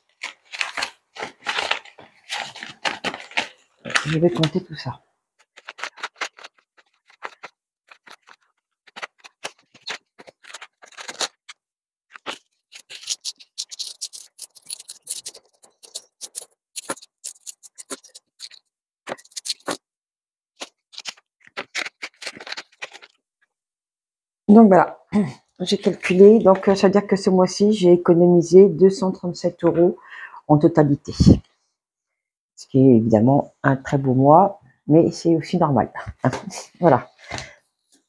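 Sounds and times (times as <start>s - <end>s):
banknotes rustling: 0.0s - 19.8s, 20.6s - 23.2s.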